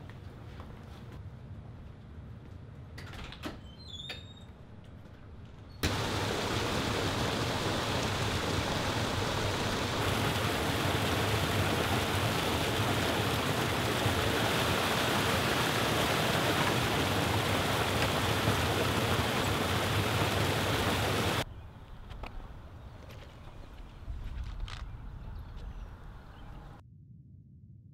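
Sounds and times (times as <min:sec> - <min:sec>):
water pouring over stone ledge: 0:05.8 - 0:21.4.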